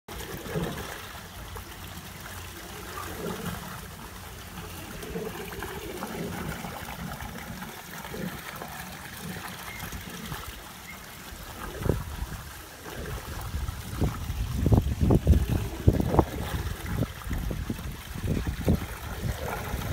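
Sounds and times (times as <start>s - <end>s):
water trickling and gurgling: 0.1s - 19.9s.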